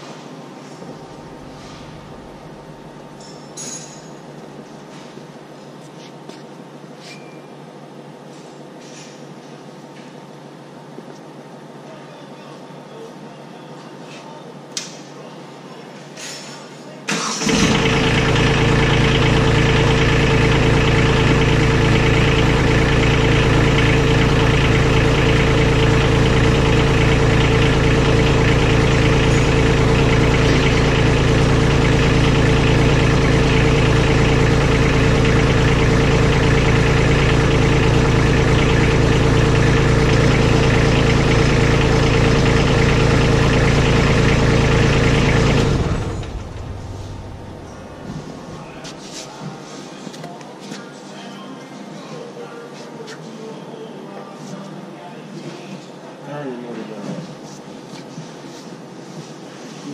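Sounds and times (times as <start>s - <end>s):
tractor engine idling: 0.6s - 3.3s, 17.1s - 49.0s.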